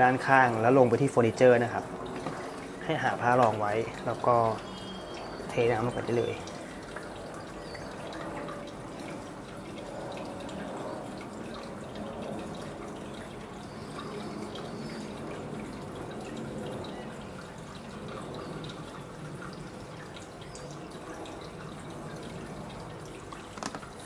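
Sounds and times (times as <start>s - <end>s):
water trickling into a tray: 0.0s - 24.0s.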